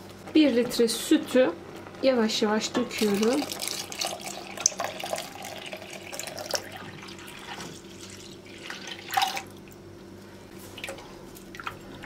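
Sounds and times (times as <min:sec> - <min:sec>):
milk pouring into a pot: 0:03.2 - 0:09.7.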